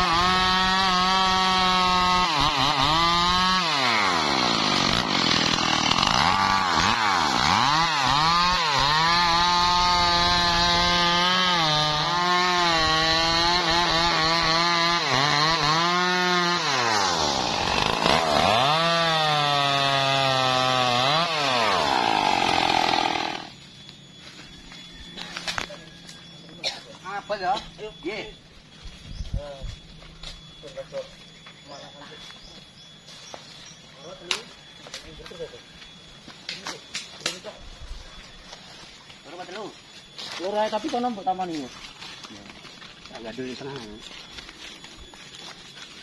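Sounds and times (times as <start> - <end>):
chainsaw cutting into tree trunk: 0.0 - 23.6.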